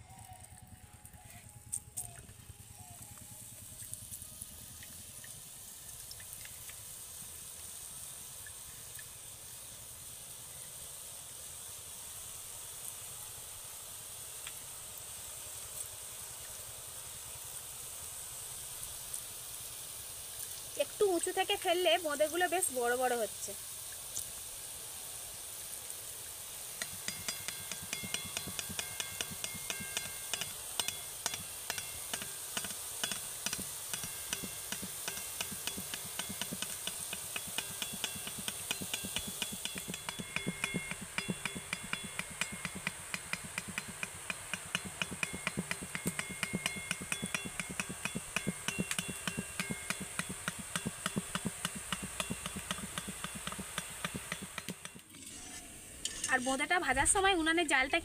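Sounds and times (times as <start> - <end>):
batter frying sizzle: 0.0 - 58.0
sharp clicks and pops: 26.8 - 55.2.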